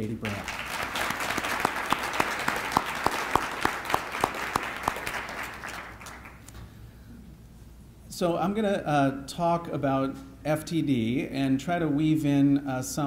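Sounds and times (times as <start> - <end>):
close evenly spaced claps: 0.2 - 6.6
audience applause: 0.3 - 6.4.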